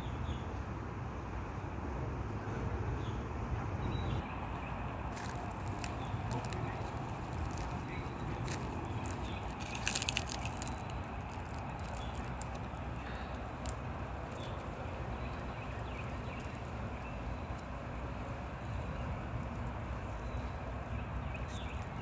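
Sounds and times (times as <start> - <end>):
light clicks and rustles: 5.1 - 17.7.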